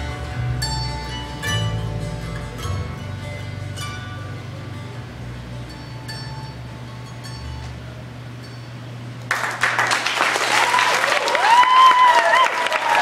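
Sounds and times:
recorded song: 0.0s - 7.8s
audience applause: 9.3s - 13.0s
audience cheering: 9.3s - 13.0s.

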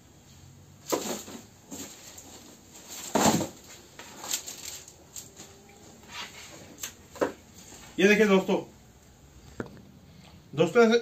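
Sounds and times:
wooden objects rustling and knocking: 0.8s - 8.0s.

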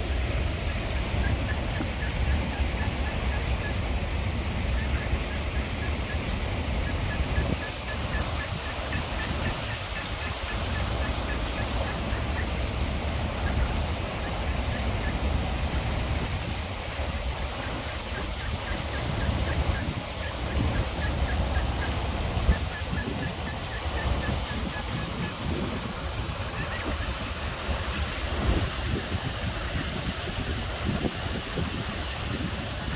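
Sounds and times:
shallow stream water rushing: 0.0s - 32.9s
ducklings peeping: 4.6s - 12.6s, 17.5s - 25.8s, 26.4s - 27.3s.

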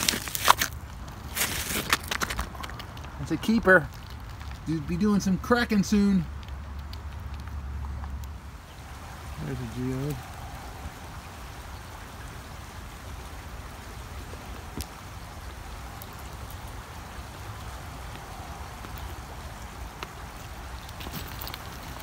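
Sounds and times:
creek water running: 0.0s - 22.0s
faint clicks: 6.0s - 8.4s.

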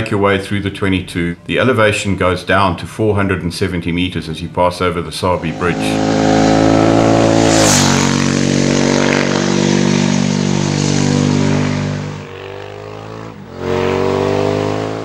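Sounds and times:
motorcycle engine passing at high revs: 5.4s - 15.0s.

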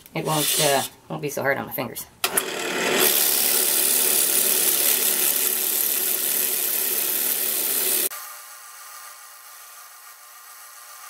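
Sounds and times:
wood lathe spinning: 2.2s - 11.0s.

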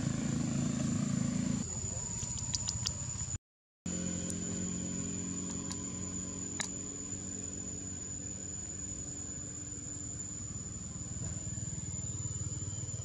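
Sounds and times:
high-pitched insect whine: 1.5s - 13.0s
low steady hum: 1.6s - 13.0s
sharp clicks: 2.2s - 3.0s, 5.4s - 5.9s, 6.6s - 6.8s.

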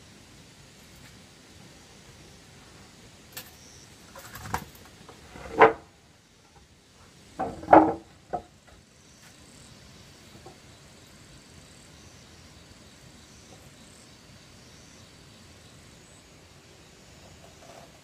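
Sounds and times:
wooden boards knocking: 5.4s - 5.9s, 7.4s - 8.6s.

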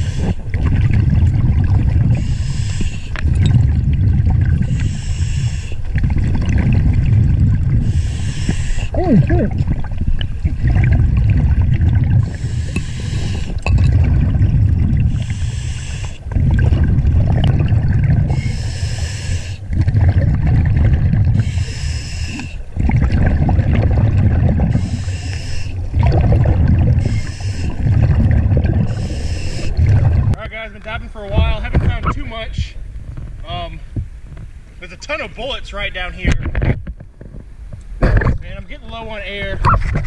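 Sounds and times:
regulator breathing hiss: 0.0s - 0.4s, 2.2s - 3.2s, 4.6s - 5.8s, 7.8s - 8.9s, 12.3s - 13.6s, 15.1s - 16.2s, 18.3s - 19.6s, 21.4s - 22.6s, 24.7s - 25.8s, 27.0s - 27.8s, 28.9s - 29.8s
bubbles rumbling: 0.0s - 2.4s, 3.1s - 5.1s, 5.8s - 15.5s, 16.2s - 32.2s.

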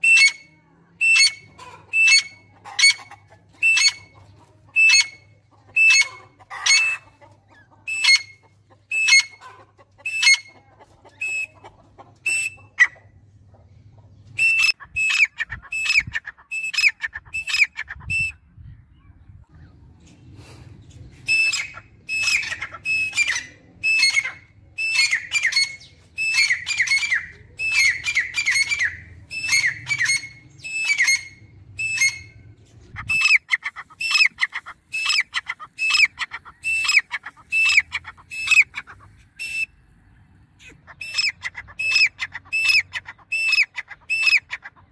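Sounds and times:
francolins calling: 14.4s - 18.4s, 21.3s - 44.9s.

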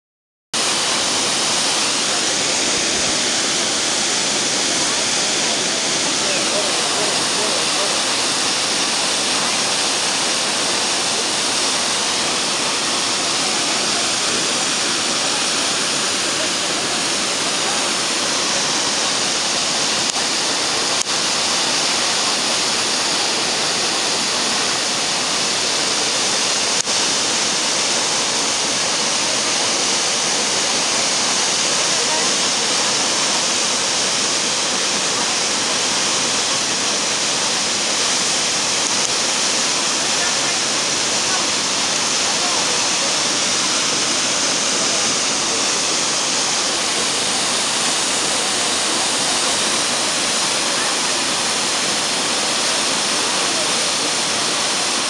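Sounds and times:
waterfall rushing: 0.6s - 55.0s.

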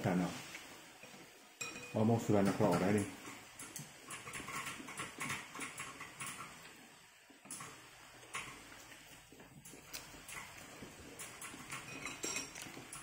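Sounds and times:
person chewing with mouth clicks: 9.6s - 11.9s.

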